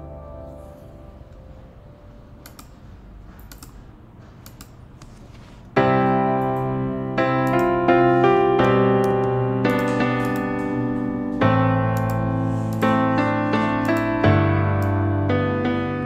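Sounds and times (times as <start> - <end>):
keyboard melody of held notes: 0.0 - 2.5, 5.8 - 16.0.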